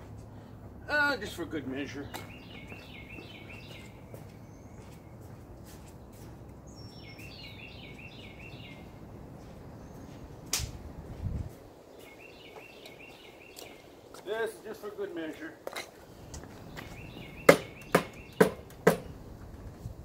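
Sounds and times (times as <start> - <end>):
songbird warbling: 2.0 - 4.0, 6.8 - 8.9, 12.0 - 14.1, 16.6 - 19.2
sharp click: 10.5 - 10.8.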